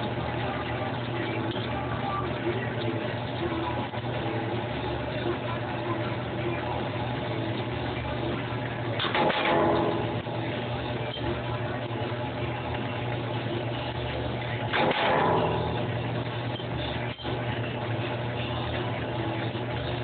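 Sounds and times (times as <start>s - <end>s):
power press motor hum: 7.6s - 20.0s.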